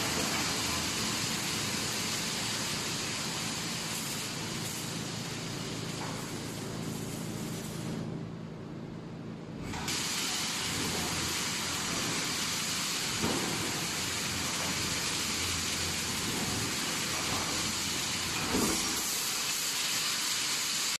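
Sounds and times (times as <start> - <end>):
welding machine hissing: 0.0 - 8.2, 9.6 - 21.0
heavy machine knock: 13.1 - 15.0.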